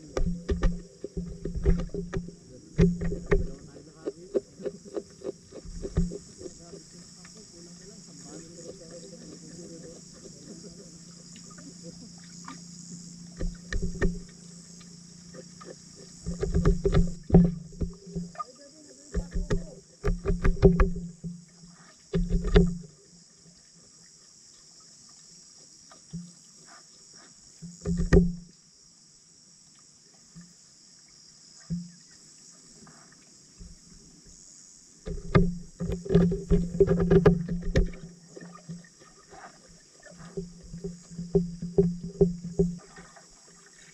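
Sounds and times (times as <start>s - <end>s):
fish feeding clicks and pops underwater: 0.0s - 12.7s, 13.3s - 18.4s, 19.1s - 23.0s, 27.6s - 28.5s, 35.1s - 43.9s
low hum and hiss: 0.0s - 43.9s.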